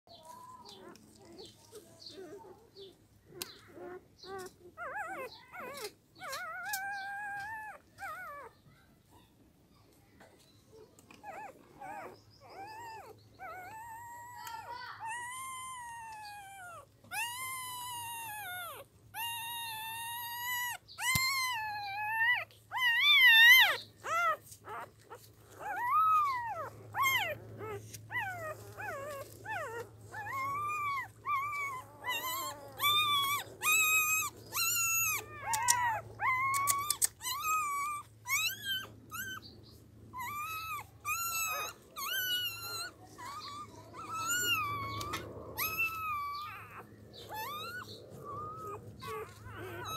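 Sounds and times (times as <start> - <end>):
puppies whining: 0.1 - 49.9.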